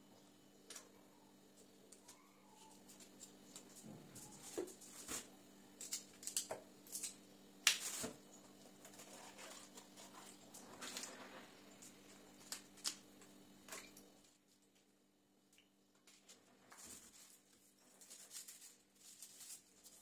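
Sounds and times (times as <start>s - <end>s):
faint steady hum: 0.0s - 20.0s
small clicks and rustles: 15.6s - 20.0s.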